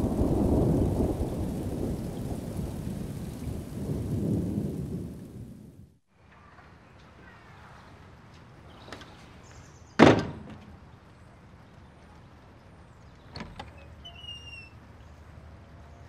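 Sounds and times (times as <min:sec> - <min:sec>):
door slamming shut: 0:10.0 - 0:10.6.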